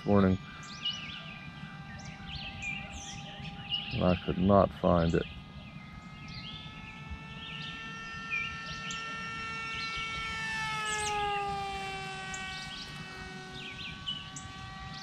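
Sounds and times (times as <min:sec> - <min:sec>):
birds chirping: 0:00.0 - 0:15.0
electric motor and propeller whining: 0:00.0 - 0:15.0.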